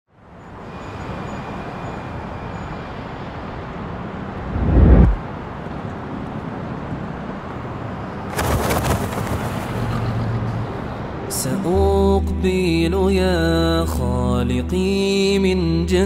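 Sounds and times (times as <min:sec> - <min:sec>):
distant traffic: 0:00.1 - 0:11.3
low rushing sound: 0:04.3 - 0:05.3.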